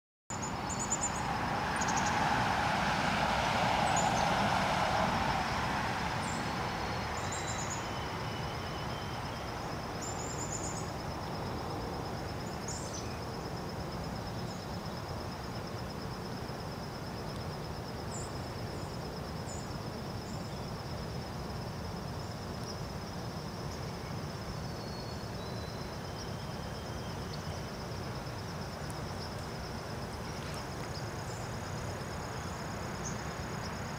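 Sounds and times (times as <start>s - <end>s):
low rushing noise: 0.5s - 8.3s.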